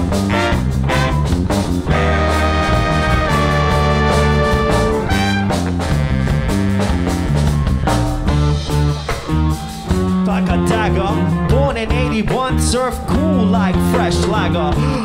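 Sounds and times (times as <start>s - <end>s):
drum kit with cymbals: 0.0s - 11.2s
electric bass line: 0.0s - 15.0s
held chord: 1.9s - 8.7s.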